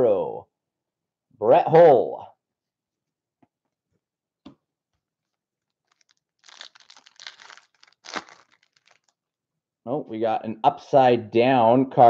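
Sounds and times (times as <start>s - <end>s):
foil wrapper crinkling and tearing: 5.7s - 9.2s.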